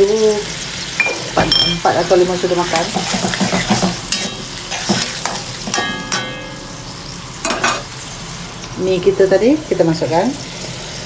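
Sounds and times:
food sizzling in a wok: 0.0s - 11.0s
metal spatula scraping a wok: 2.6s - 6.8s.

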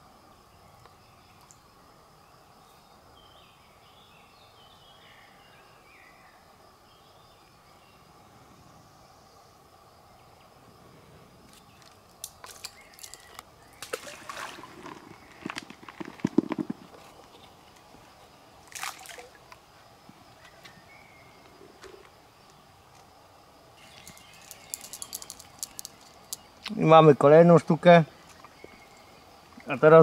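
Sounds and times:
fishing tackle clicks and knocks: 11.8s - 13.4s, 23.9s - 26.5s
stream water splashing: 11.9s - 16.6s, 18.6s - 19.5s.

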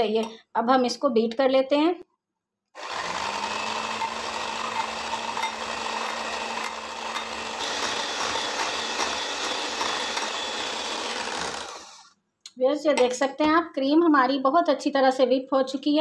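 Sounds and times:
electric hand mixer whipping cream: 2.8s - 12.1s.

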